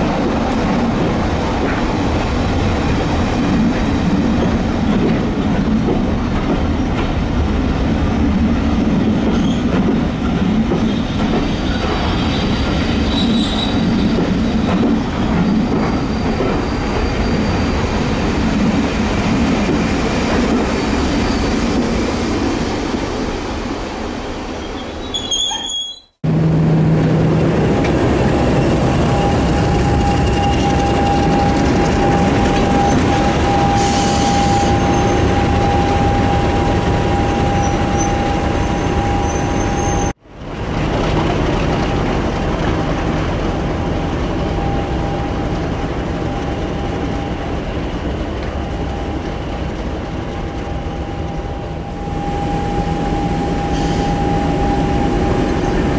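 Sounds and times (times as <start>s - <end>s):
diesel train rumbling: 0.0s - 25.2s, 26.2s - 55.9s.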